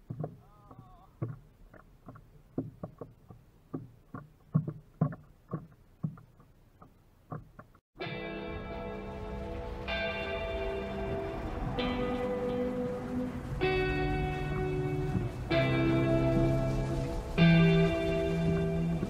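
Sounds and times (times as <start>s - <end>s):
small waves slapping a hull: 0.0s - 7.8s, 10.5s - 19.0s
music: 8.0s - 19.0s.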